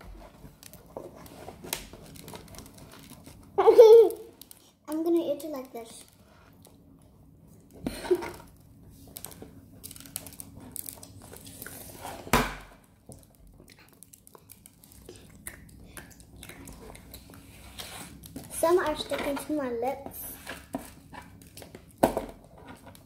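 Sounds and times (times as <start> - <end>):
clicks and crunches of chewing: 13.1 - 17.5.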